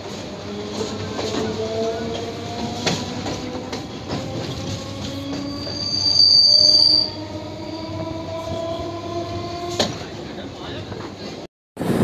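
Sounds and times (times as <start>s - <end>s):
electric train whine: 0.0s - 10.2s
wheel squeal: 4.6s - 7.8s.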